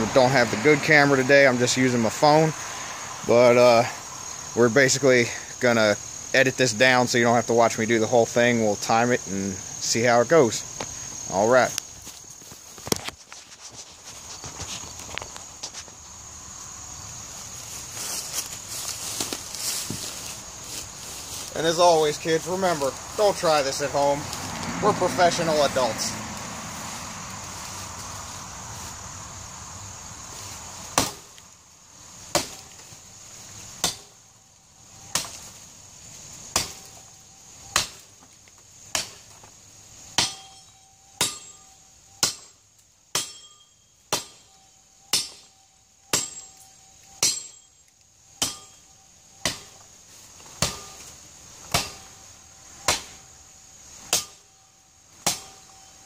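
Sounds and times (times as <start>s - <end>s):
sword chopping into tree trunk: 30.9s - 31.4s, 32.3s - 32.8s, 33.8s - 34.1s, 35.1s - 35.5s, 36.5s - 37.0s, 37.7s - 38.1s, 38.9s - 39.3s, 40.2s - 40.6s, 42.2s - 42.5s, 44.1s - 44.4s, 45.1s - 45.5s, 46.1s - 46.5s, 47.2s - 47.6s, 48.4s - 48.8s, 49.4s - 49.8s, 50.6s - 52.2s, 52.8s - 53.2s, 54.1s - 54.4s, 55.2s - 55.7s.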